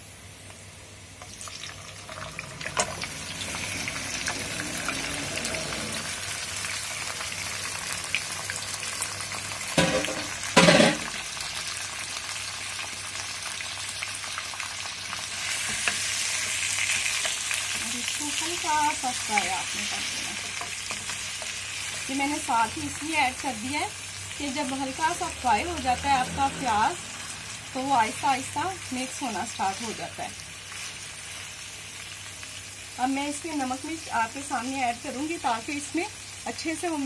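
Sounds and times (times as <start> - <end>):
meat sizzling in hot oil: 0.0 - 37.0
spoon stirring and scraping pan: 15.4 - 22.2.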